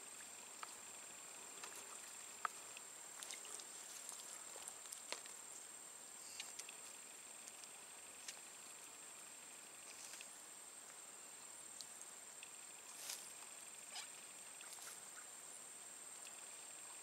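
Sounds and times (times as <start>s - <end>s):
steady high-pitched whine: 0.0s - 17.0s
faint scattered clicks: 1.6s - 5.4s, 6.3s - 9.0s.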